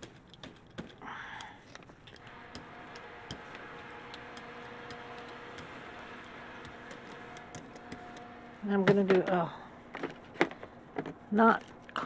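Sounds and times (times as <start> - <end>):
paint roller ticking clicks: 2.1 - 9.1.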